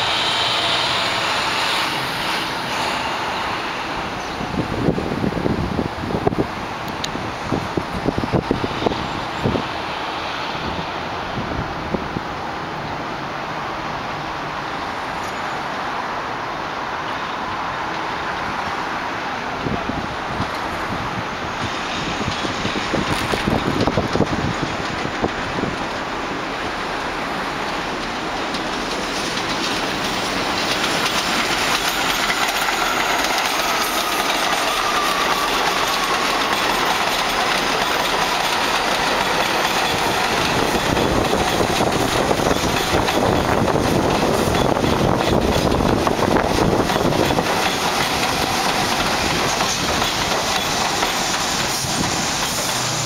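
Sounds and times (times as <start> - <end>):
train wheels clattering over rails: 19.5 - 53.0.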